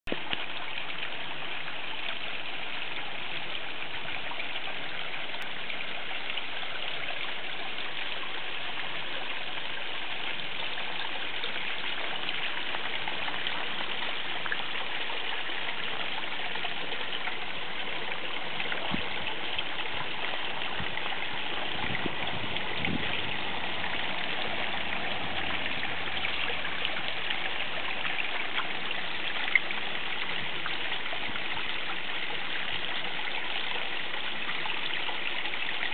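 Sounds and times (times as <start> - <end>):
water trickling down rocks: 0.1 - 35.9.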